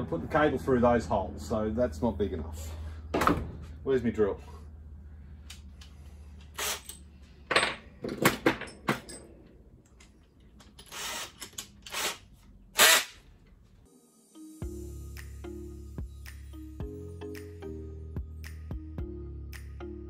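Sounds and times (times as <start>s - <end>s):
drill handling clicks and rattles: 9.9s - 12.2s.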